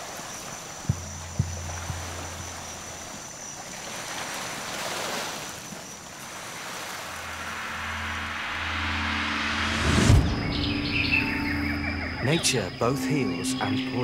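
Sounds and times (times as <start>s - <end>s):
small waves lapping at shore: 0.0s - 8.5s
steady high-pitched tone: 7.1s - 14.0s.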